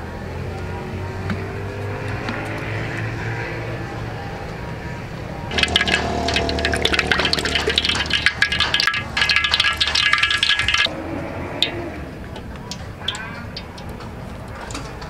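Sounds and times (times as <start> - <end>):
oil pouring into a wok: 5.5 - 10.9.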